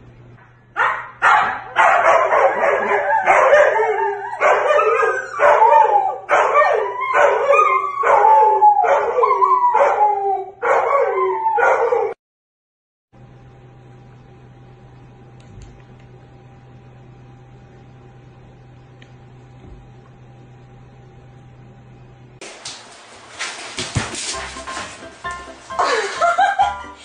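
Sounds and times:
dog howling and barking: 0.8s - 12.2s.

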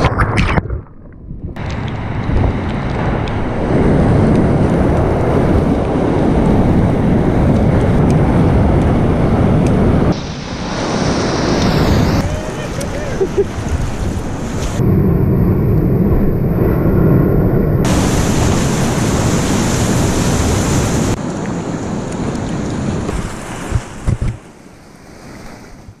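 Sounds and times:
wind buffeting microphone: 0.0s - 24.5s
whitewater rapids rushing: 10.1s - 14.8s.

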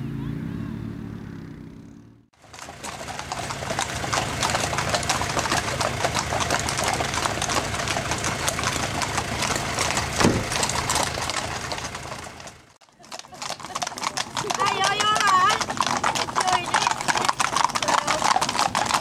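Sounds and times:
vehicle engine idling: 0.1s - 12.8s
horse hooves clip-clopping: 2.4s - 19.0s
loud knock: 10.2s - 10.5s.

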